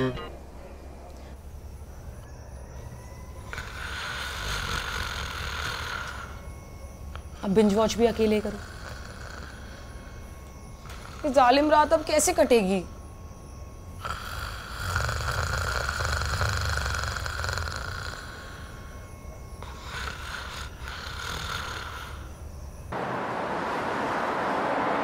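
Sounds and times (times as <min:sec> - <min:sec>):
man snoring: 0:03.5 - 0:06.5, 0:08.4 - 0:11.4, 0:14.0 - 0:22.4
city traffic hum: 0:22.9 - 0:25.0.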